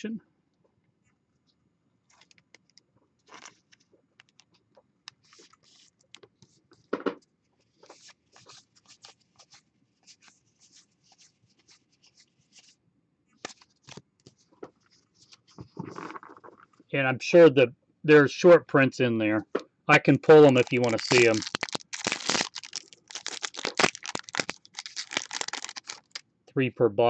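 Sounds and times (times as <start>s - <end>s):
cards sliding and flicking: 13.4s - 14.0s.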